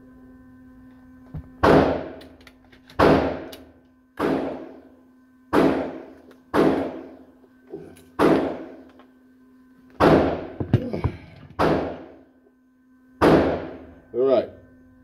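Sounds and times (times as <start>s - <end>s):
steady hum: 0.0s - 15.0s
gunshots with booming echo: 4.2s - 4.8s, 5.5s - 7.1s, 8.2s - 8.7s, 11.6s - 12.1s, 13.2s - 13.8s.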